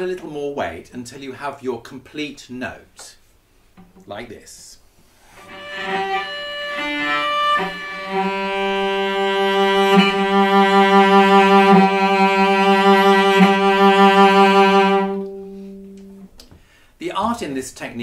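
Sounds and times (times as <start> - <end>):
cello bowing long note: 5.4 - 16.3.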